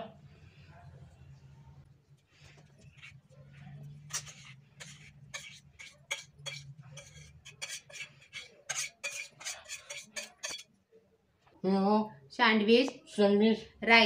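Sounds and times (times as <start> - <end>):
spoon clinking in metal bowl: 4.1 - 10.7.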